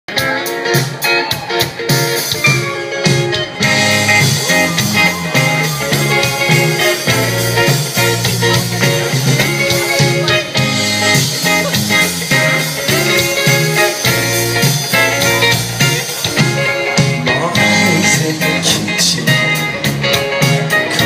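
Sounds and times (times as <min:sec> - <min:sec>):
live rock band playing: 0:00.1 - 0:21.0.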